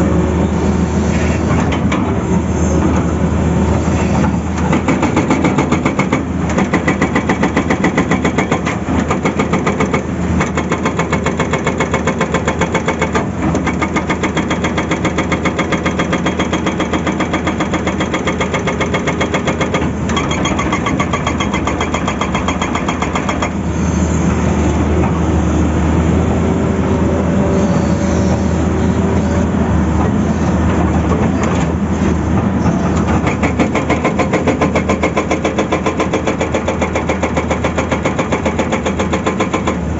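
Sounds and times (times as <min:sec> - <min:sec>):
excavator engine running: 0:00.0 - 0:39.9
hydraulic rock breaker hammering: 0:04.5 - 0:23.6, 0:32.9 - 0:39.9.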